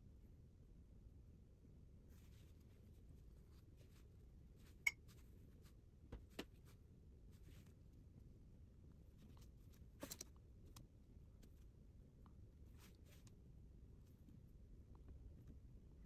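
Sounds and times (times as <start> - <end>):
brush strokes on paper: 2.1 - 5.8.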